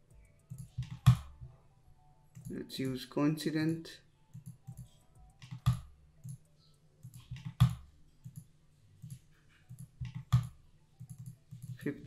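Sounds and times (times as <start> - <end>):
mouse and keyboard clicks: 0.5 - 1.4, 4.4 - 6.4, 7.0 - 11.8.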